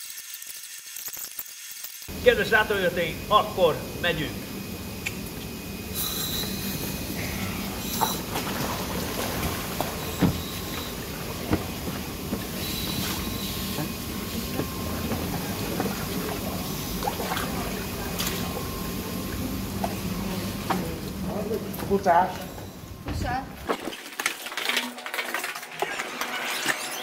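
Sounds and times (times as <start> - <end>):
low mechanical hum: 2.0 - 27.0.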